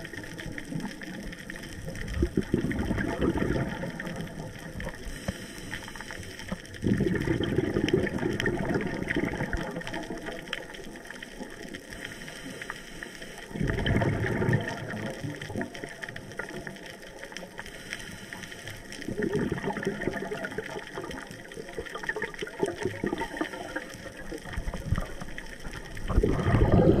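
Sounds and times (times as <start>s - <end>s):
diver exhaling bubbles: 2.0s - 5.3s, 6.7s - 10.4s, 13.5s - 15.8s, 19.1s - 21.2s, 21.9s - 25.2s, 25.8s - 27.0s
water hiss: 3.7s - 6.7s, 11.4s - 16.6s, 17.4s - 19.2s, 23.0s - 27.0s.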